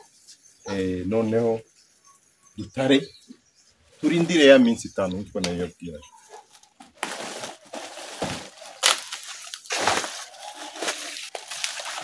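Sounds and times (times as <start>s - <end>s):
leaves crunching: 7.0s - 12.0s
leaves rustling and crackling: 7.0s - 12.0s.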